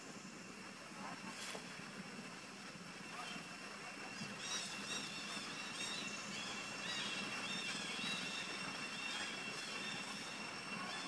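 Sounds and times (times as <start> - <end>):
high insect drone: 0.0 - 11.0
bird wavering calls: 4.2 - 11.0.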